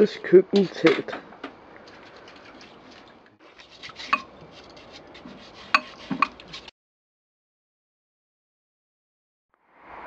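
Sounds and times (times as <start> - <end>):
dish brush scrubbing a pot: 1.9 - 6.7.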